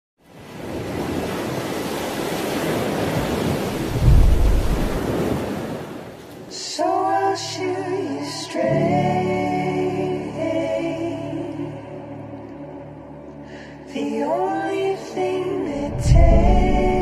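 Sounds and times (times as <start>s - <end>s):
surf washing onto beach: 0.2s - 6.6s
music: 6.5s - 17.0s.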